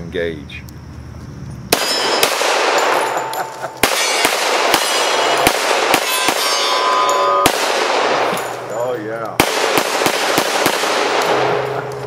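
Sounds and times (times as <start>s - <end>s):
suppressed pistol shots: 1.7s - 3.2s, 3.8s - 6.5s, 9.4s - 11.7s
steel targets clanging: 1.7s - 9.1s, 11.1s - 12.0s.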